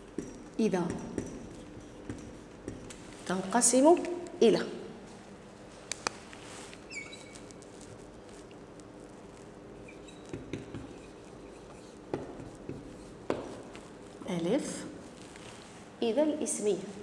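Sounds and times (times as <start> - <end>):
marker squeaking on whiteboard: 6.8 - 7.9, 9.8 - 13.2.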